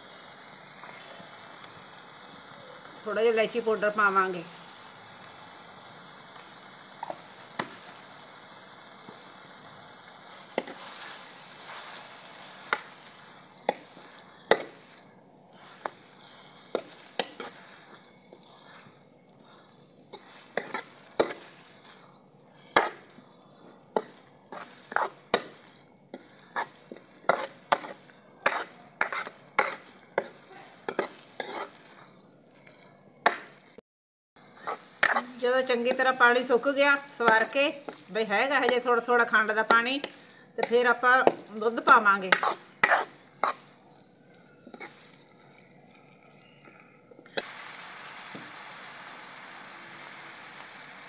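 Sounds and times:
mixture sizzling in wok: 0.0s - 33.8s, 34.4s - 51.0s
ladle scraping and clicking on pan: 19.5s - 22.0s, 22.7s - 23.0s, 23.9s - 25.5s, 26.1s - 31.8s, 41.8s - 43.6s.

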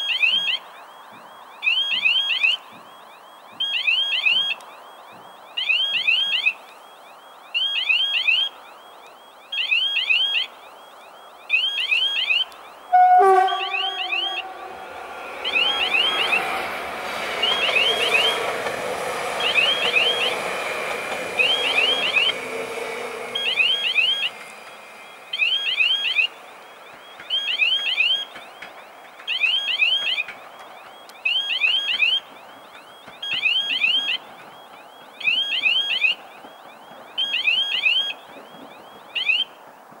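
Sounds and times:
level-crossing warning chirps: 0.0s - 39.7s
electric train passing: 10.6s - 40.0s.

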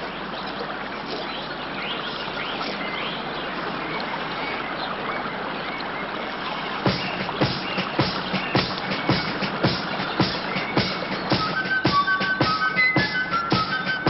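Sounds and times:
birds chirping: 0.0s - 14.0s
river water rushing: 0.0s - 14.0s
music: 6.8s - 14.0s
drum hits: 6.9s - 14.0s.

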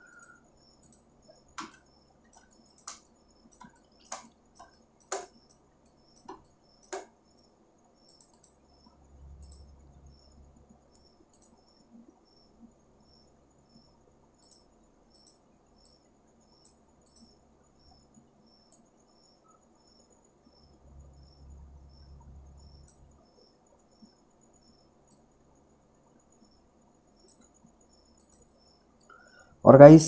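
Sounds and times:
faint high chirp: 0.0s - 2.8s
computer mouse clicking: 0.1s - 7.1s, 8.1s - 8.6s, 9.4s - 9.7s, 10.9s - 11.6s, 14.4s - 16.0s, 16.6s - 17.4s, 27.2s - 27.6s, 28.2s - 29.2s.

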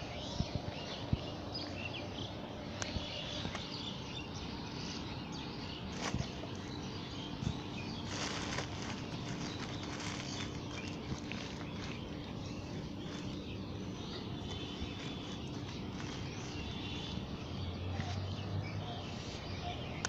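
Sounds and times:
birds chirping: 0.0s - 20.0s
plastic and paper rustling: 5.9s - 6.8s, 7.4s - 13.6s, 14.4s - 17.2s.

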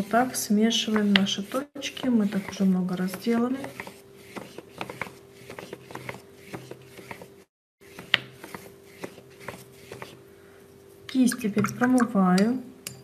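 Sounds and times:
paintbrush scrubbing on paper: 0.7s - 10.2s.

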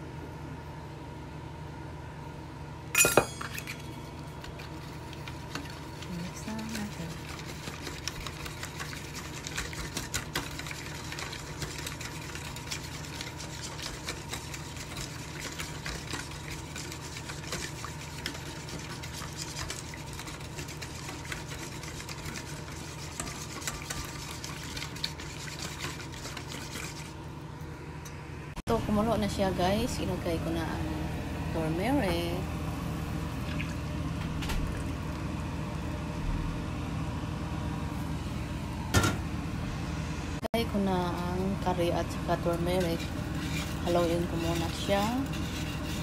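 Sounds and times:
steady low hum: 0.0s - 46.0s
metal spoon scraping a pot: 5.5s - 27.2s, 42.7s - 46.0s.

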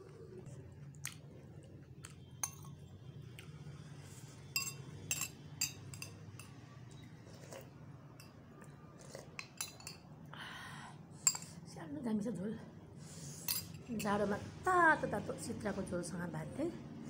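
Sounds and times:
spoon clinking on ceramic bowl: 2.4s - 2.8s, 4.6s - 6.6s, 9.4s - 10.1s.

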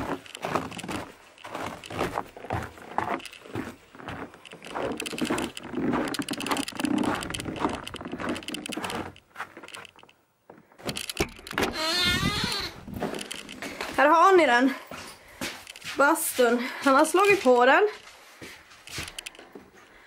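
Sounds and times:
footsteps crunching through snow: 0.0s - 9.7s
clothing rustling: 0.0s - 10.1s
door handle clicking: 10.9s - 12.2s.

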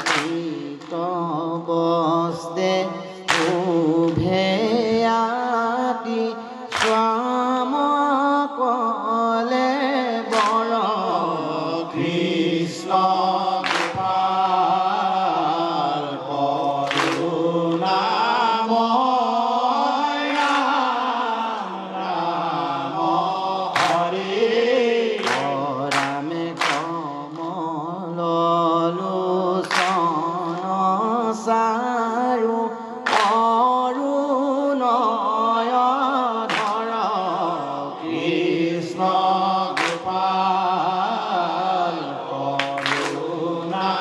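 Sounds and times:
hand claps: 0.0s - 1.2s, 3.0s - 4.6s, 6.7s - 7.3s, 10.2s - 18.3s, 20.1s - 27.6s, 29.6s - 30.8s, 33.0s - 33.6s, 36.4s - 37.2s, 38.0s - 44.0s
lead singer voice: 0.0s - 44.0s
men singing in chorus: 0.0s - 44.0s.

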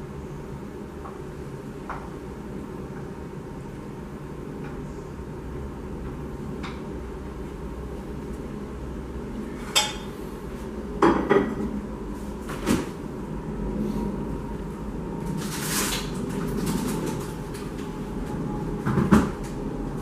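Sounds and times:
steady low hum: 0.0s - 20.0s
dishes and utensils clinking: 9.6s - 10.2s.

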